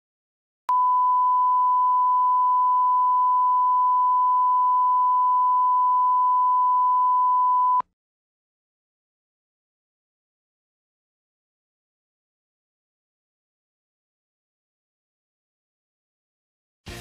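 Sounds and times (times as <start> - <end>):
steady test tone beep: 0.7 - 7.8.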